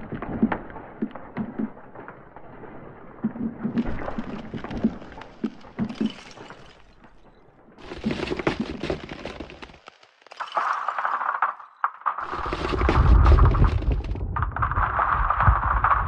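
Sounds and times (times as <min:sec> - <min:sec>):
ice cracks and thuds: 0:03.2 - 0:16.0
ice crashing rumble: 0:03.6 - 0:07.0, 0:07.8 - 0:16.0.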